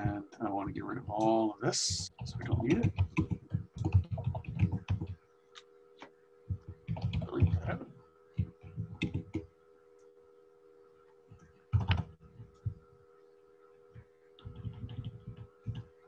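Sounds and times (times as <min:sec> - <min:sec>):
faint steady hum: 0:00.0 - 0:16.0
keyboard keystrokes: 0:02.2 - 0:05.2, 0:08.4 - 0:09.4, 0:11.7 - 0:12.1
computer mouse clicks: 0:08.4 - 0:10.1, 0:11.4 - 0:12.7.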